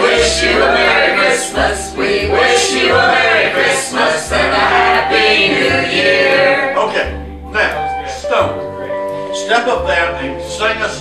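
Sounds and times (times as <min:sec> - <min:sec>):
group of voices singing: 0:00.0 - 0:07.4
instruments with bass line: 0:00.0 - 0:11.0.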